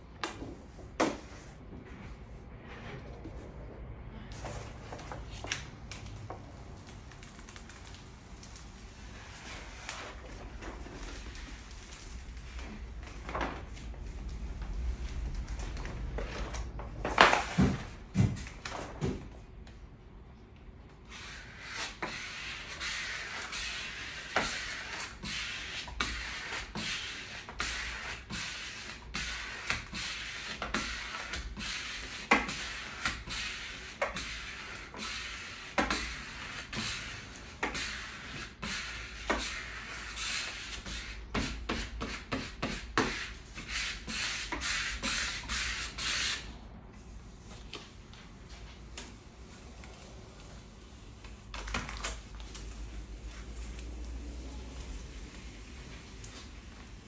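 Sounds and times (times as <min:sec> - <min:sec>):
squeegee rubbing film on glass: 0:05.9 - 0:12.9, 0:21.1 - 0:57.0.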